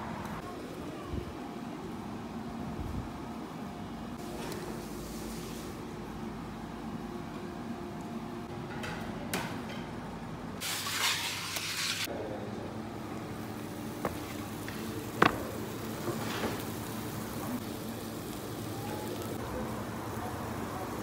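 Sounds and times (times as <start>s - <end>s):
food sizzling in a pan: 10.6s - 12.1s.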